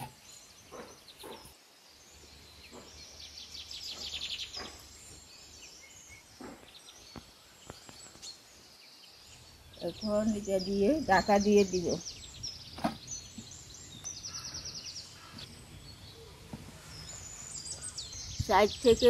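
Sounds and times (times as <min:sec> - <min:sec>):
birds chirping: 0:00.0 - 0:19.0
chattering bird trill: 0:09.7 - 0:15.5, 0:16.1 - 0:19.0.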